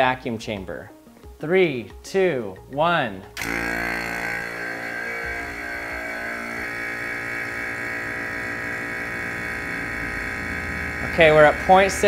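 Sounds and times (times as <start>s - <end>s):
vacuum pump humming: 3.4s - 12.0s.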